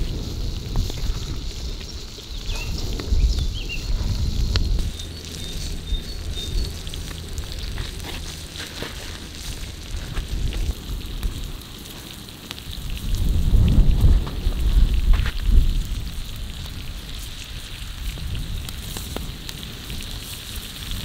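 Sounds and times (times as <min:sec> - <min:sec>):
low rumble: 0:00.0 - 0:11.7
fat sizzling and popping: 0:00.0 - 0:21.0.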